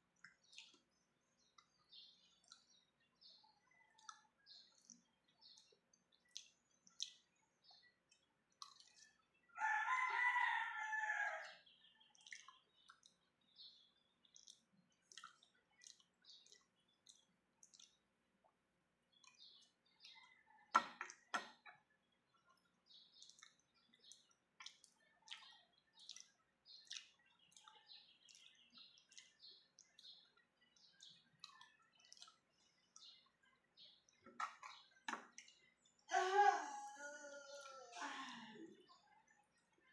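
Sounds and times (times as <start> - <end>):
chewing: 3.8 - 9.3, 11.4 - 21.3, 22.3 - 35.7.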